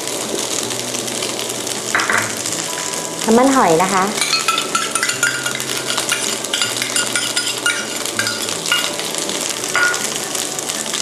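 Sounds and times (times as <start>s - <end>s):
rice sizzling in a frying pan: 0.0s - 11.0s
metal spoon clinking on steel bowl: 4.2s - 9.1s, 9.8s - 10.1s.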